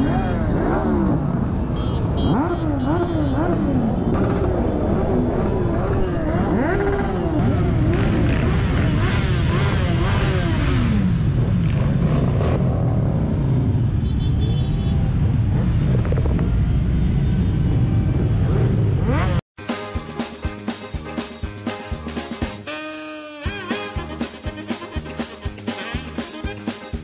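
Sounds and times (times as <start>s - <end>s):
motorcycle engines revving: 0.0s - 14.2s, 14.9s - 19.4s.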